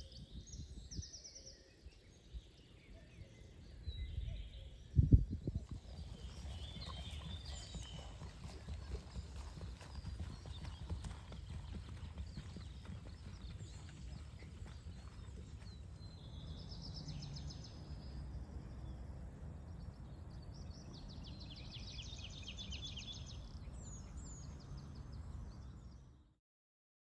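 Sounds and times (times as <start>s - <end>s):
wind rumble on microphone: 0.0s - 26.1s
horse hoof clops: 5.6s - 16.0s.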